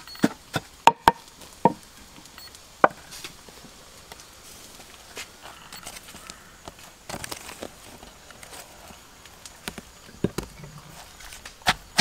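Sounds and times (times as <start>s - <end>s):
faint handling sounds: 3.0s - 11.6s.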